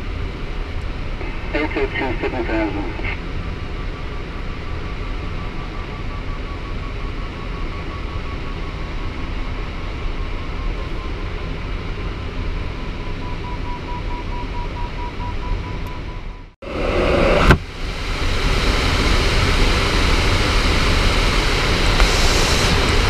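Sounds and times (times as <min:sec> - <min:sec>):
cockpit airflow rush: 0:16.6 - 0:23.0.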